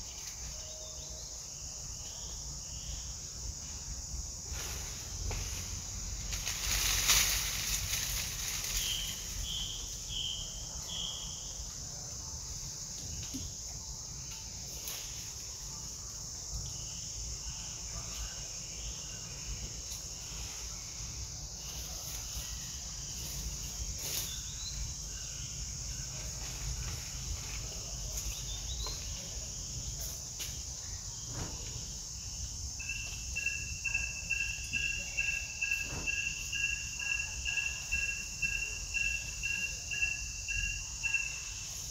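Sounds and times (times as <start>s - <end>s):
insects droning: 0.0s - 41.9s.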